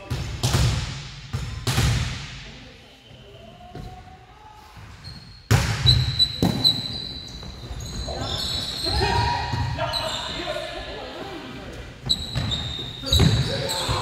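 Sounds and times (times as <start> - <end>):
volleyball hits echoing: 0.0 - 2.6, 5.5 - 6.7.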